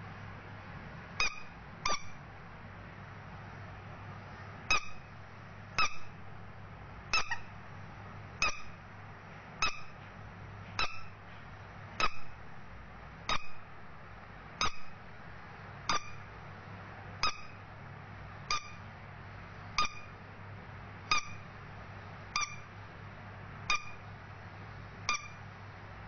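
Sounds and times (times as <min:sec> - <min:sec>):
rubber duck toy squeaking: 0:01.2 - 0:02.2, 0:04.7 - 0:05.0, 0:05.8 - 0:06.1, 0:07.1 - 0:07.5, 0:08.4 - 0:08.8, 0:09.6 - 0:10.0, 0:10.8 - 0:11.1, 0:12.0 - 0:12.3, 0:13.3 - 0:13.6, 0:14.6 - 0:14.9, 0:15.9 - 0:16.2, 0:17.2 - 0:17.6, 0:18.5 - 0:18.8, 0:19.8 - 0:20.1, 0:21.1 - 0:21.4, 0:22.4 - 0:22.7, 0:23.7 - 0:24.0, 0:25.1 - 0:25.4.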